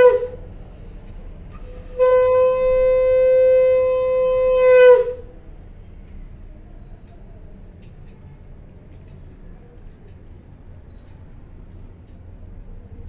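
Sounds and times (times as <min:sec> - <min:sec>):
conch shell blown: 0:00.0 - 0:00.4, 0:01.5 - 0:05.3.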